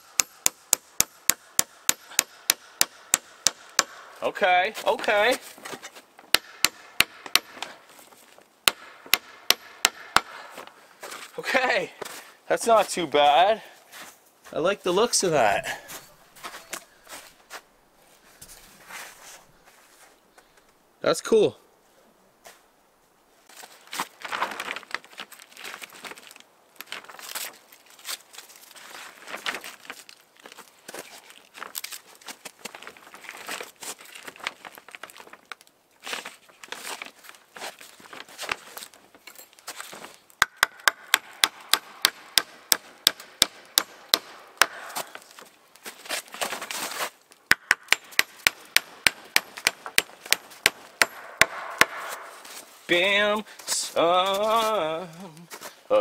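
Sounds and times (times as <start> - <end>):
axe head striking nails into log: 0.1 - 4.1, 6.3 - 7.7, 8.7 - 10.4, 40.4 - 45.2, 47.5 - 52.3
rustling: 15.8 - 20.8, 23.4 - 40.3, 44.8 - 47.4, 51.8 - 55.9
plastic sheeting crinkling: 23.7 - 40.3.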